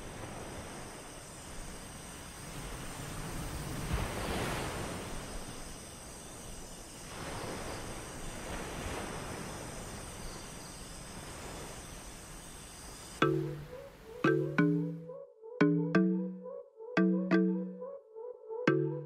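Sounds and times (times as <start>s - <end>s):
ocean surf washing onto beach: 0.0s - 6.1s, 7.0s - 14.3s.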